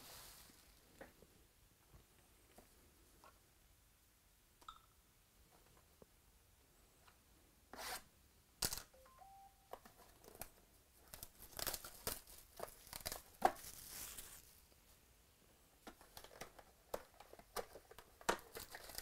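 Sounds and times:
plastic wrap crinkling: 0:10.2 - 0:14.6, 0:16.0 - 0:19.0
plastic wrap snapping: 0:10.3 - 0:14.4, 0:16.1 - 0:19.0
plastic wrap tearing: 0:11.1 - 0:14.5, 0:18.4 - 0:19.0.

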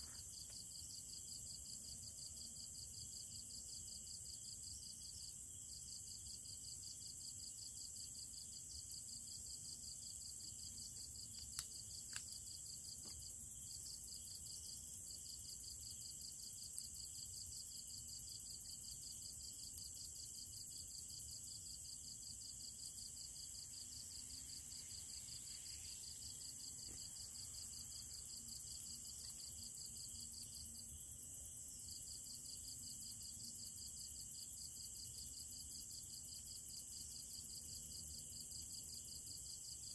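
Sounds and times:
night insects trilling: 0:00.0 - 0:39.9
steady high hiss: 0:09.0 - 0:33.9.

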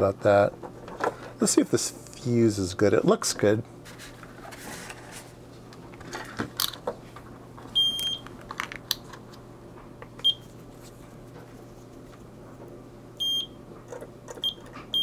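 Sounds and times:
multimeter beeping: 0:07.8 - 0:08.2, 0:13.2 - 0:13.6, 0:14.4 - 0:15.0.

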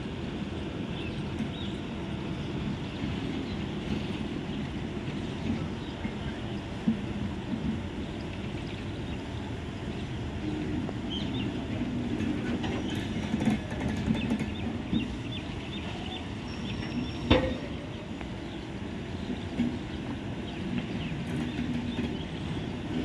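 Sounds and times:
train coaches rumbling: 0:00.0 - 0:23.0
loud clank: 0:17.2 - 0:17.8.

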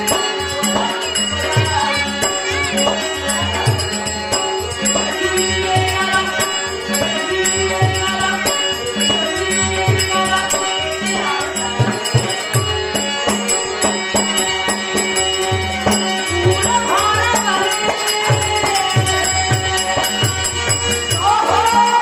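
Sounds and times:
harmonium chords: 0:00.0 - 0:22.0
jingling metal percussion: 0:00.0 - 0:22.0.

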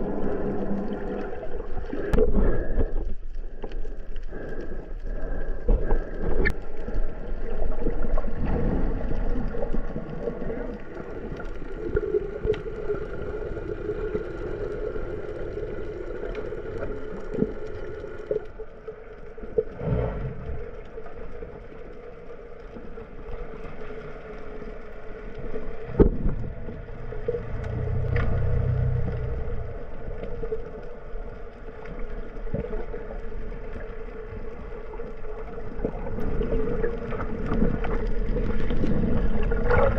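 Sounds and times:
boat motor hum underwater: 0:00.0 - 0:39.9
muffled underwater noise: 0:24.2 - 0:39.9.

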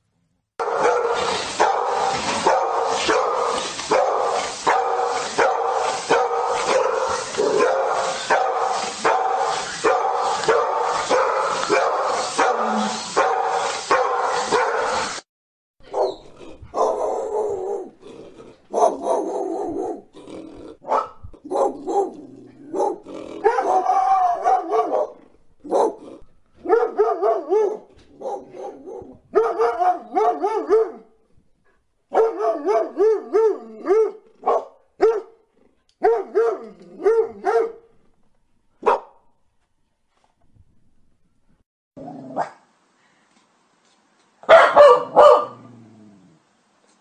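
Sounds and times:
dog barking and howling: 0:00.6 - 0:15.1, 0:15.9 - 0:18.0, 0:18.7 - 0:20.1, 0:20.8 - 0:31.1, 0:32.1 - 0:35.3, 0:36.0 - 0:37.8, 0:44.5 - 0:45.7.

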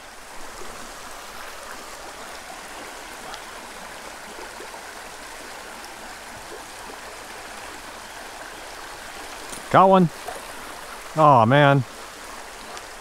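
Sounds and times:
creek flowing: 0:00.0 - 0:13.0
faint rain ticks: 0:12.7 - 0:13.0.

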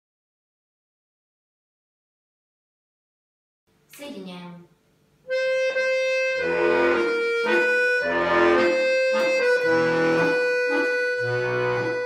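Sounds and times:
button accordion playing a waltz: 0:05.3 - 0:12.0.

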